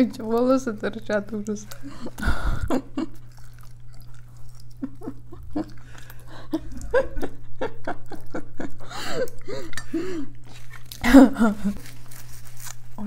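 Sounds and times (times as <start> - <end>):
spoon eating sounds: 0.0 - 7.2, 7.9 - 13.0
steady low hum: 0.0 - 13.0
person chewing with wet mouth clicks: 2.9 - 7.0.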